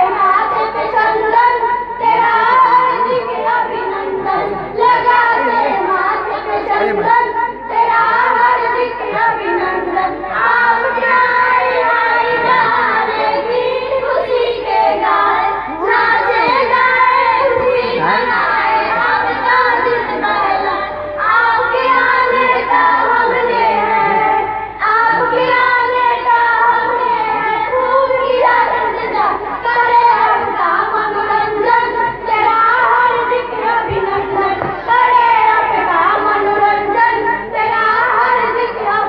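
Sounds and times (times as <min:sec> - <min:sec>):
girls singing together: 0:00.0 - 0:39.0.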